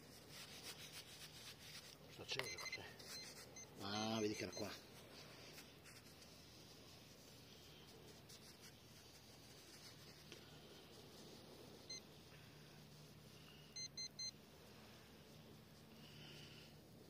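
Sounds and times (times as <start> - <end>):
pinpointer short beeps: 2.4 - 4.8, 13.7 - 14.4.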